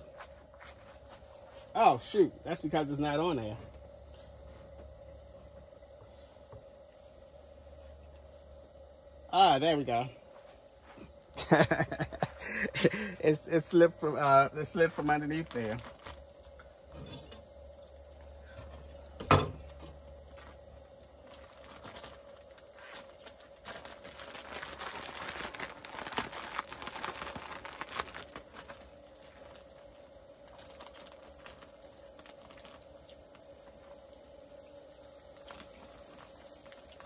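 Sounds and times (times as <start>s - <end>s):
faint steady hum: 0.0s - 37.0s
plastic bag crinkling: 14.6s - 16.6s, 19.6s - 37.0s.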